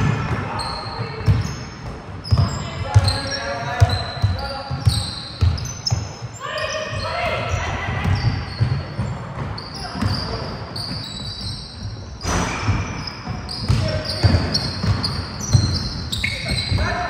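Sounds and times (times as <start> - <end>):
players and spectators talking: 0.0 - 12.2
basketball bouncing on court: 0.0 - 17.0.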